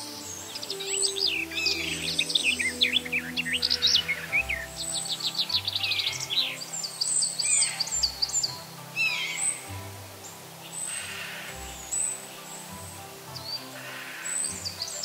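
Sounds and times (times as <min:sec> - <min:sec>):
soft background music: 0:00.0 - 0:15.0
songbirds chirping and trilling: 0:00.0 - 0:15.0.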